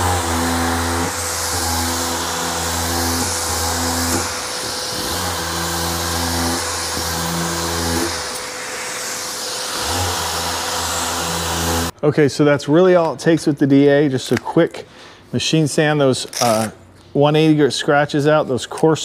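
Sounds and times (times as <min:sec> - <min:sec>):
orbital sander whirring: 0:00.0 - 0:12.0.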